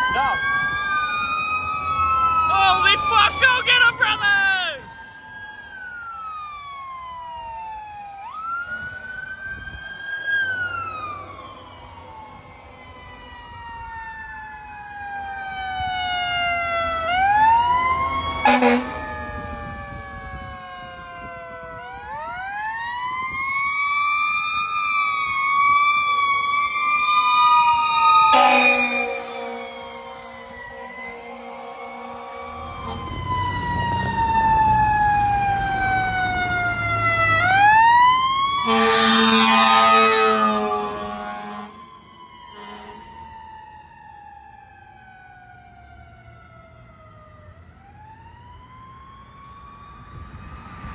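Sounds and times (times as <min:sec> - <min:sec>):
fire engine sirens wailing: 0:00.0 - 0:50.9
air horn blasts: 0:18.4 - 0:19.0, 0:28.3 - 0:29.7, 0:30.7 - 0:33.1, 0:38.6 - 0:41.8, 0:42.6 - 0:43.0.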